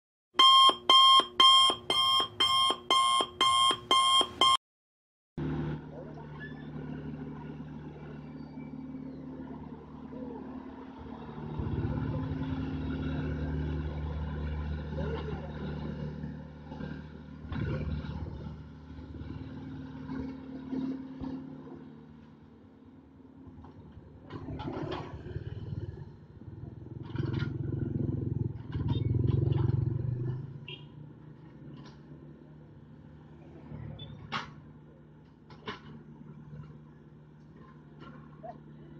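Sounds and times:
electronic beeping: 0.4s - 4.6s
motorbike passing: 5.4s - 22.1s, 23.8s - 34.0s
excavator diesel engine: 5.4s - 38.9s.

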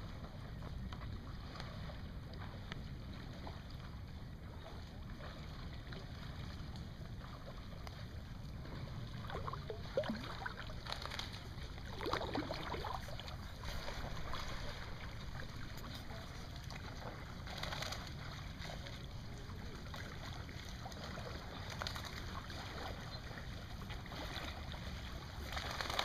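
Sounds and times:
small waves lapping at shore: 0.0s - 26.0s.

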